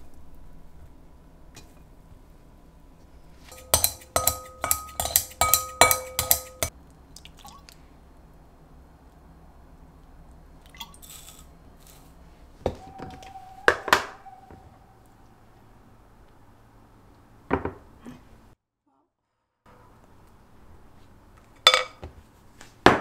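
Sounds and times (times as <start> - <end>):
kitchenware clinking: 3.5 - 6.7, 21.6 - 22.1.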